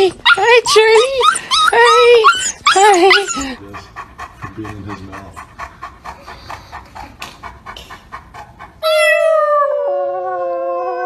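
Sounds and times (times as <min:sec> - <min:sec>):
dog panting: 0:00.0 - 0:09.3
puppy howling: 0:00.3 - 0:03.6, 0:08.8 - 0:11.0.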